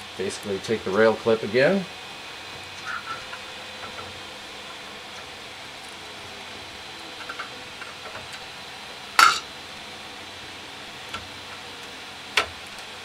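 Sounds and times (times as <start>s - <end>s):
metal rail clinking: 9.2s - 9.4s.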